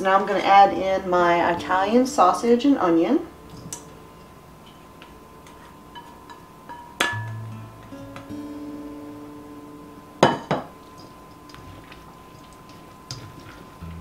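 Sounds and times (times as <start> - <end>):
soft background music: 5.9 - 14.0.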